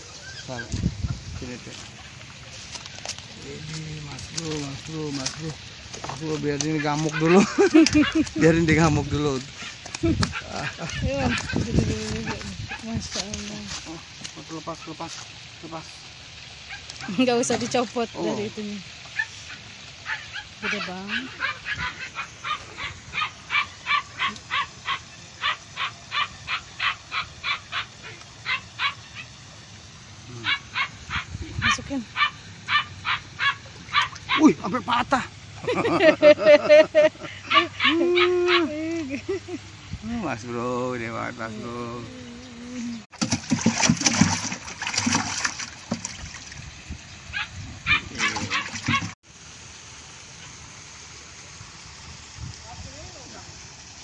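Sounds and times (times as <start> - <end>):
fish splashing in plastic container: 43.1 - 46.7.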